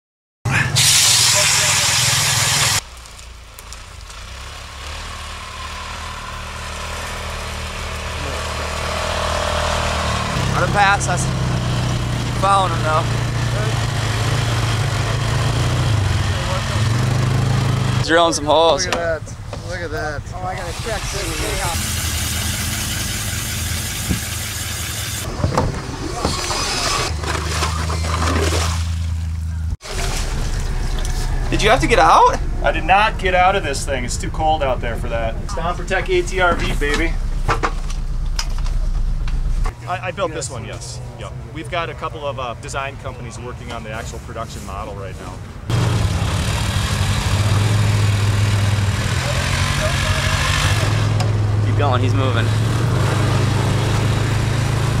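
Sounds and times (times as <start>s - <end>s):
snow hissing under tracks: 0.8s - 2.8s, 20.6s - 25.3s
vehicle engine running: 2.0s - 55.0s.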